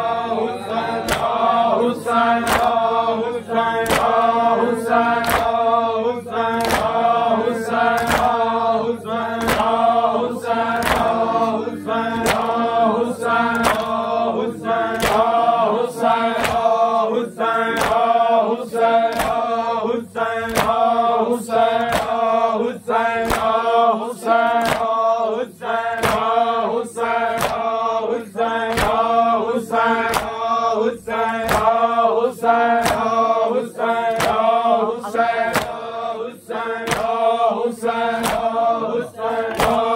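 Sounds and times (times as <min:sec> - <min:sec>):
men chanting a mourning lament: 0:00.0 - 0:39.9
steady drone: 0:00.0 - 0:39.9
hand slaps on chest: 0:01.1 - 0:01.4, 0:02.4 - 0:02.8, 0:03.8 - 0:04.2, 0:05.2 - 0:05.6, 0:06.6 - 0:07.0, 0:08.0 - 0:08.4, 0:09.4 - 0:09.7, 0:10.8 - 0:11.2, 0:13.5 - 0:14.0, 0:14.9 - 0:15.3, 0:16.4 - 0:16.7, 0:17.8 - 0:18.0, 0:19.1 - 0:19.4, 0:20.5 - 0:20.8, 0:21.8 - 0:22.2, 0:23.2 - 0:23.6, 0:24.6 - 0:24.9, 0:26.0 - 0:26.3, 0:27.4 - 0:27.6, 0:28.7 - 0:29.0, 0:30.1 - 0:30.4, 0:31.4 - 0:31.7, 0:32.8 - 0:33.1, 0:34.1 - 0:34.4, 0:35.5 - 0:35.8, 0:36.8 - 0:37.2, 0:38.2 - 0:38.5, 0:39.5 - 0:39.9.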